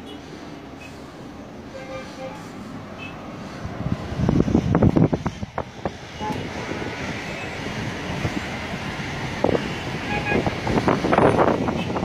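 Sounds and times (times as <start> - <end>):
road traffic: 0.0 - 12.0
wind on microphone: 3.5 - 12.0.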